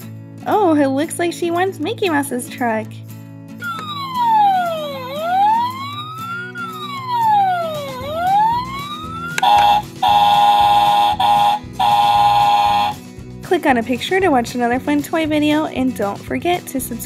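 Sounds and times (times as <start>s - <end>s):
steady electronic ringing: 3.6s - 12.9s
toy siren wailing: 3.6s - 13.0s.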